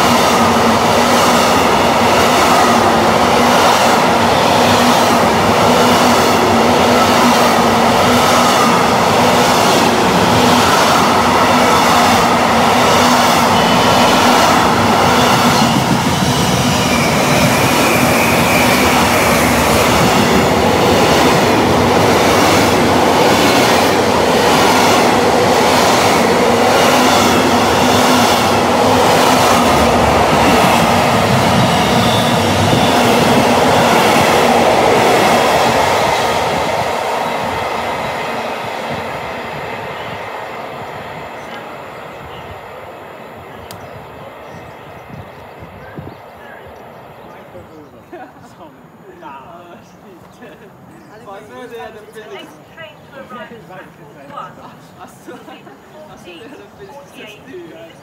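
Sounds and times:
train wheels clattering over rails: 0.0 - 41.6
train rumble: 0.0 - 50.0
high wheel squeal: 15.0 - 19.8.

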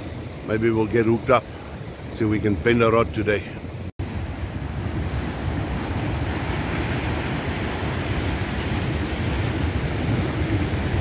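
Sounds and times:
wind rumbling on microphone: 0.0 - 11.0
surf breaking over rocks: 4.0 - 11.0.

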